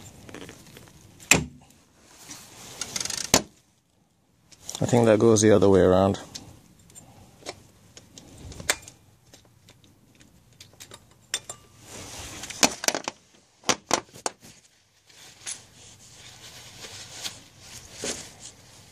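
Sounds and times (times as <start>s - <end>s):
metal tools clicking and clinking: 9.6s - 11.8s.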